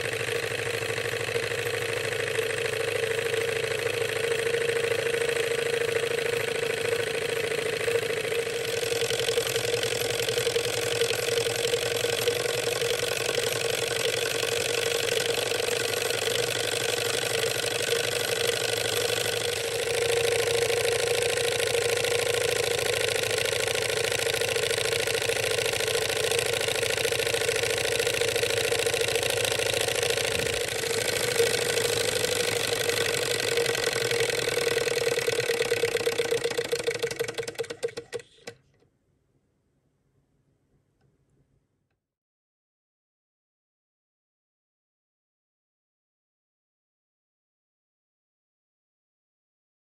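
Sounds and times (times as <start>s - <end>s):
toy engine whirring: 0.0s - 38.6s.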